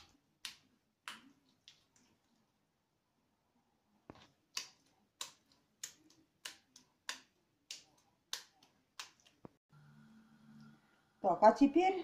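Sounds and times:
wet patty slapped between hands: 0:00.0 - 0:01.8, 0:04.1 - 0:09.6.

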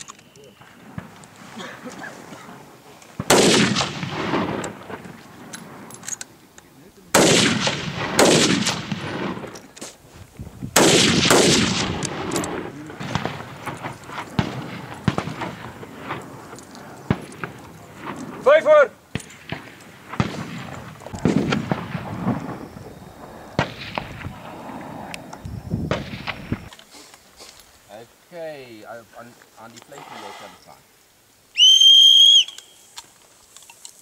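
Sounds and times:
faint gunshot cracks: 0:03.2 - 0:04.7
rifle shots with echo: 0:03.2 - 0:05.9, 0:07.1 - 0:09.6, 0:10.8 - 0:22.9, 0:23.5 - 0:24.5.

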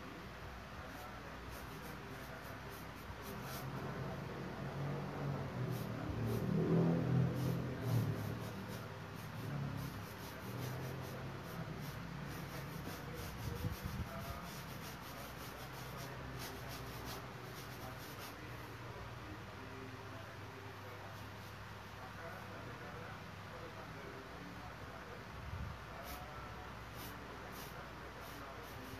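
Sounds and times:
pen scratching on canvas: 0:01.5 - 0:03.8, 0:05.6 - 0:06.6, 0:07.3 - 0:18.4.

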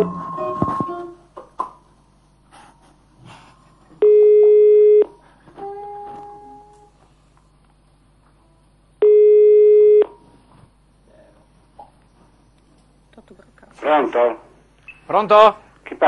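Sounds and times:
telephone ringback tone: 0:09.0 - 0:10.1.

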